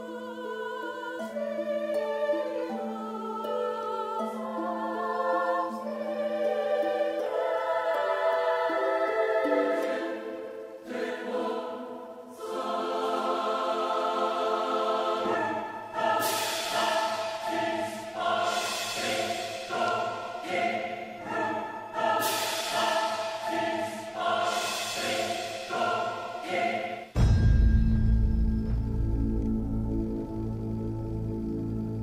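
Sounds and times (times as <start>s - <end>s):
slow choir-like chords: 0.0s - 32.0s
high shimmer: 14.3s - 31.4s.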